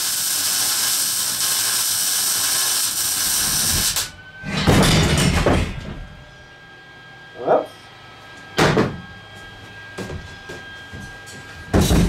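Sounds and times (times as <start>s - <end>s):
power tool grinding steel: 0.0s - 4.1s.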